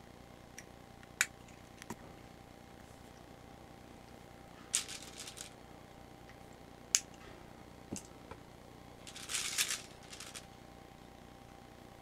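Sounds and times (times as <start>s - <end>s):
plastic pellets rattling in a bottle: 4.7s - 5.6s, 9.0s - 10.5s.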